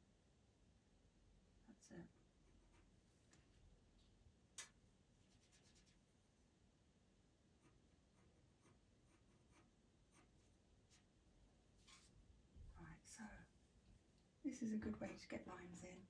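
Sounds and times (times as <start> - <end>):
pencil scratching on paper: 2.4 - 3.0, 5.3 - 6.0, 7.6 - 11.1, 11.8 - 12.1.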